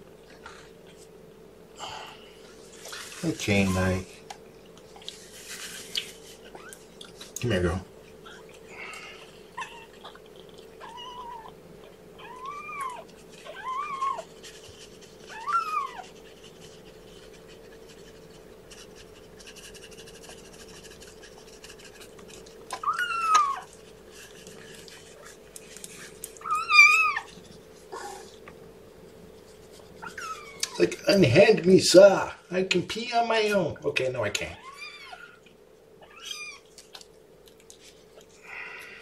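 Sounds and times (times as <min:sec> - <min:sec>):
kitten mewing: 0:10.8 - 0:11.6, 0:12.2 - 0:14.3, 0:15.3 - 0:16.1, 0:22.7 - 0:23.7, 0:26.4 - 0:27.3.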